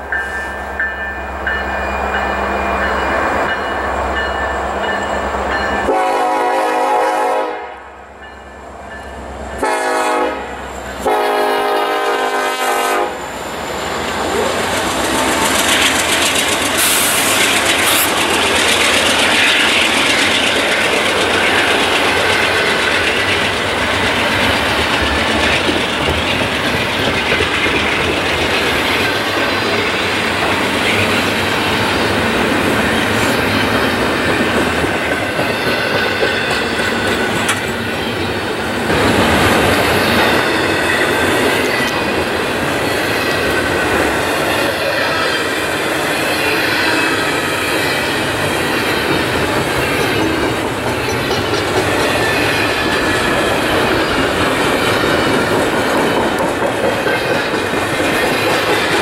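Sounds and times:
train rumbling on rails: 0:00.0 - 0:59.0
train horn blasts: 0:05.8 - 0:08.0, 0:09.6 - 0:13.3.

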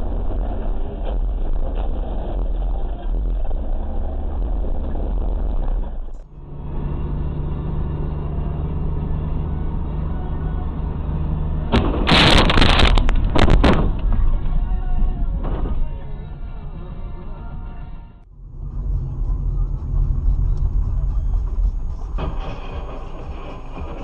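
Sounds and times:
road and engine rumble: 0:00.0 - 0:24.0.

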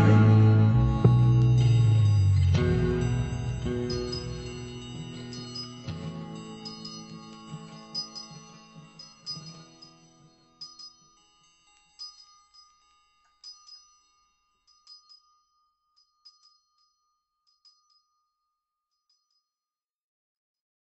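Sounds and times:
band playing low notes: 0:00.0 - 0:05.3
high chimes ringing: 0:00.0 - 0:18.4.

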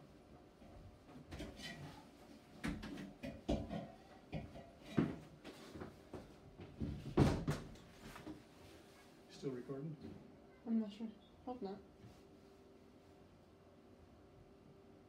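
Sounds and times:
wooden knocks and clunks: 0:02.6 - 0:05.2, 0:05.8 - 0:07.8.

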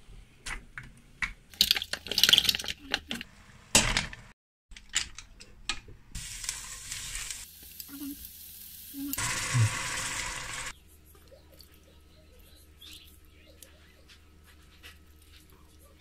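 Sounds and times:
butter sizzling in a pot: 0:06.2 - 0:10.7.

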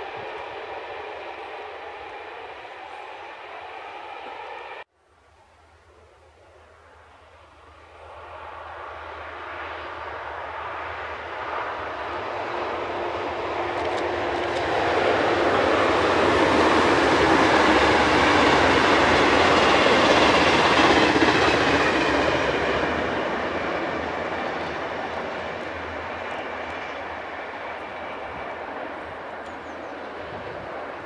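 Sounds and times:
train wheels rumbling: 0:08.1 - 0:31.0.

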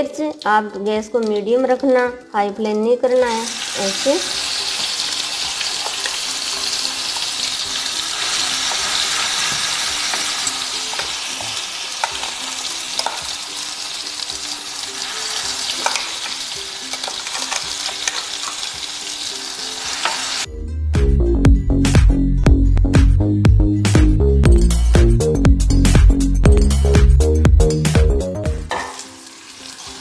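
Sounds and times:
paste sizzling in hot oil: 0:03.3 - 0:20.5, 0:28.7 - 0:30.0
spoon stirring in pan: 0:04.4 - 0:13.6, 0:14.5 - 0:19.2.

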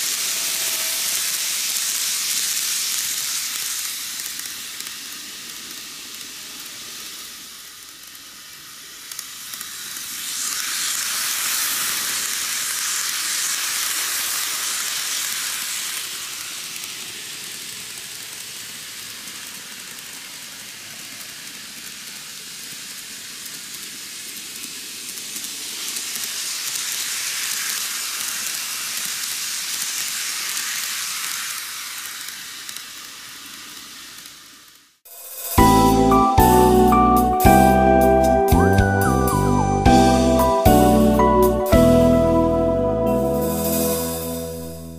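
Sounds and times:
model train whirring on track: 0:00.0 - 0:35.6.

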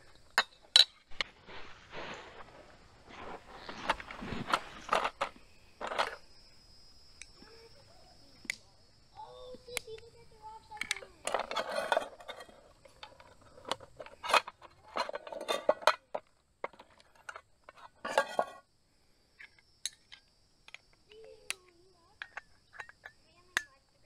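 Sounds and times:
scraping rustles: 0:01.0 - 0:06.2, 0:10.4 - 0:18.6
metal cookware clinking: 0:14.2 - 0:16.0, 0:18.0 - 0:18.6.

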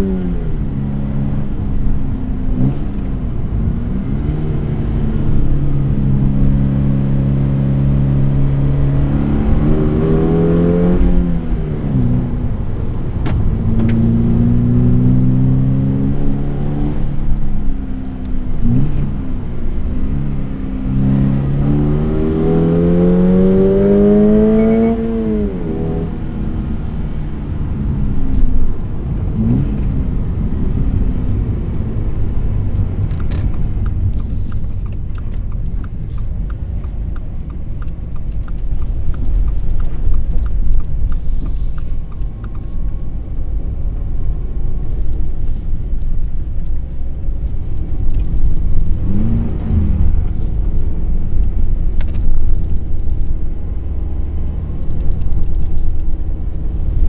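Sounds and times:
car engine revving: 0:00.0 - 0:27.6, 0:28.2 - 0:57.0
road and tyre rumble: 0:00.0 - 0:57.0
turn signal ticking: 0:32.2 - 0:56.7.

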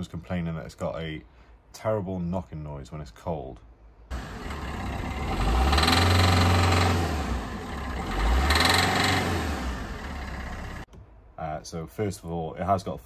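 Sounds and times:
diesel engine knocking rattle: 0:04.2 - 0:09.2.

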